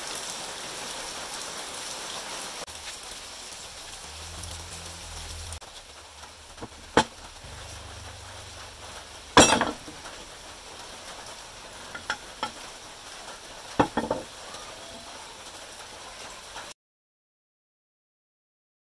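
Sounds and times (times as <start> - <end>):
metal knocks and clinks: 6.6 - 10.4, 11.9 - 12.6, 13.8 - 14.3.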